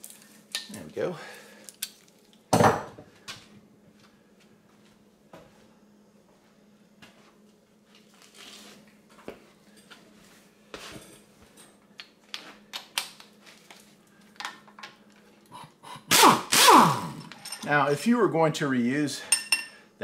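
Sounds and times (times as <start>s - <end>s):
faint steady hum: 0.0s - 20.0s
impact wrench burst: 15.8s - 17.4s
metal tools clicking and knocking: 17.2s - 17.7s.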